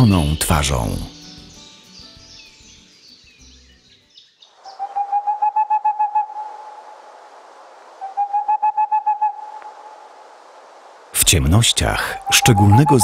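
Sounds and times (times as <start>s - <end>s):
background hiss: 0.0s - 13.0s
owl hooting: 4.6s - 6.9s, 8.0s - 10.0s, 12.0s - 13.0s.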